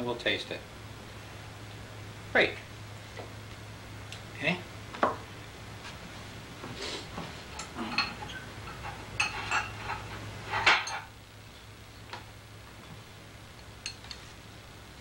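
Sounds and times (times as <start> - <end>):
dishes and utensils clattering: 7.5 - 11.1.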